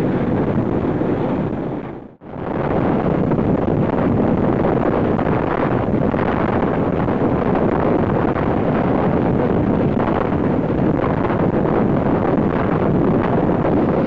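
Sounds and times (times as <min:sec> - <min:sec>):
helicopter rotor and engine: 0:00.0 - 0:02.1
wind buffeting microphone: 0:00.0 - 0:14.0.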